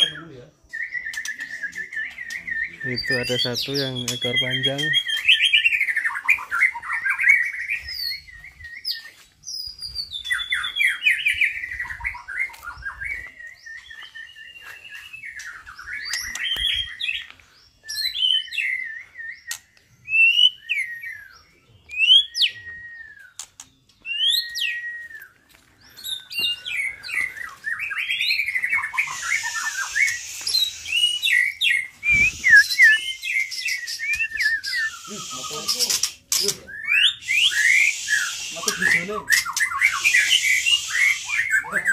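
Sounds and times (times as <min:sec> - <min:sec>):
songbirds whistling and chirping: 0:00.0 - 0:41.9
rough hissing: 0:29.0 - 0:31.2, 0:34.7 - 0:36.2, 0:37.2 - 0:39.0, 0:40.0 - 0:41.6.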